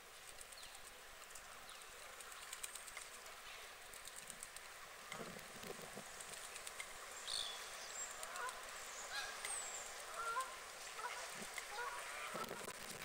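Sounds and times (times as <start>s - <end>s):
small birds chirping: 0.0s - 12.8s
steady background noise: 0.0s - 13.0s
waterfowl calling: 7.4s - 12.8s.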